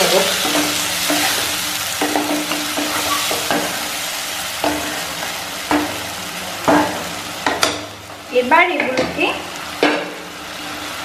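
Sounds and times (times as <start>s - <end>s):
food sizzling in a pan: 0.0s - 11.0s
spatula knocking a pan: 0.4s - 3.9s, 4.6s - 8.2s, 8.8s - 9.2s, 9.8s - 10.3s
spatula scraping a pan: 0.4s - 4.0s.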